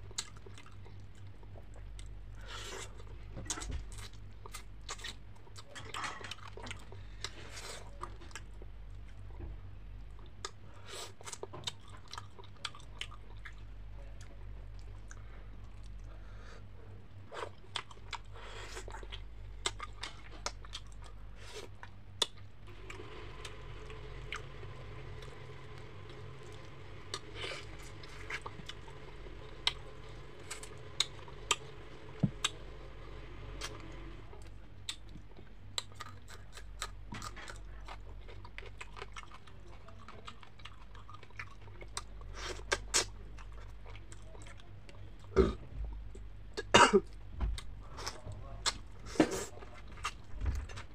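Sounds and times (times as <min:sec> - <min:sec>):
person chewing and crunching: 0:00.0 - 0:09.2, 0:10.1 - 0:16.1, 0:17.3 - 0:22.5, 0:24.3 - 0:32.6, 0:34.8 - 0:44.7.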